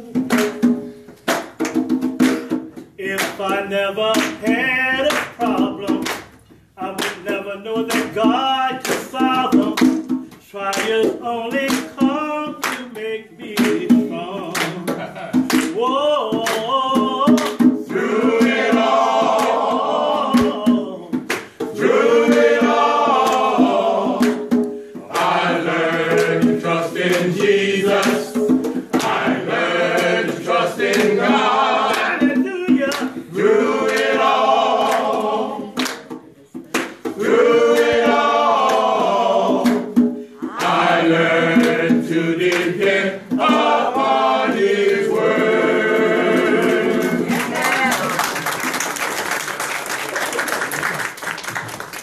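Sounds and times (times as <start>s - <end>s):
hand-clapping: 0.2s - 3.5s, 4.1s - 17.8s, 18.4s - 19.6s, 20.3s - 42.9s, 47.0s - 52.0s
men's group singing in harmony: 6.8s - 36.0s, 37.0s - 47.6s.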